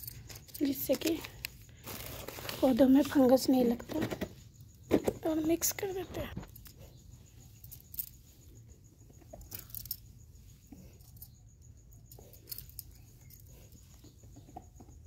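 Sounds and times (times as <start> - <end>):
soil rustling and scratching: 1.0 - 3.4.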